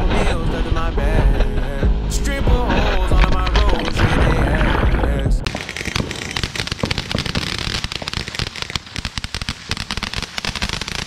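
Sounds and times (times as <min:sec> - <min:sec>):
firecrackers popping: 0:02.4 - 0:11.0.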